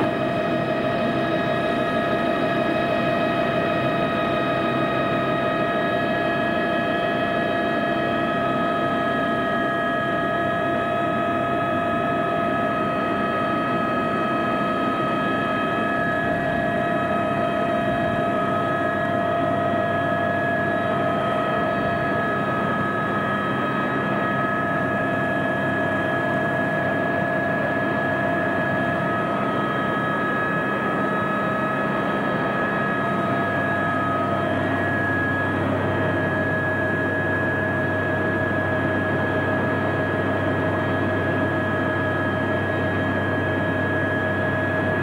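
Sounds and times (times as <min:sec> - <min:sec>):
helicopter cabin whine and rumble: 0:00.0 - 0:45.0.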